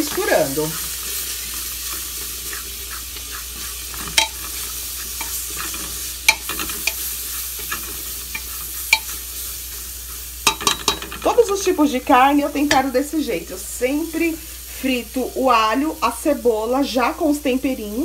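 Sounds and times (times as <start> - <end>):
onion and garlic sizzling in oil: 0.0 - 18.0
spatula scraping a pot: 0.1 - 11.4.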